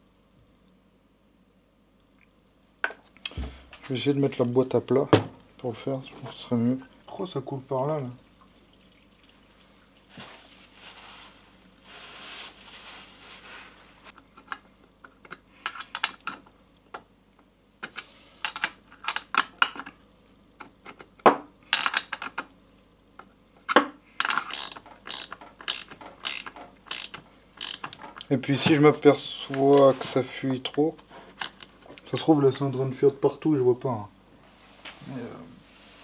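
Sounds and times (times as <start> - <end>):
soft hissing: 6.2 - 14.2, 34.4 - 36.0.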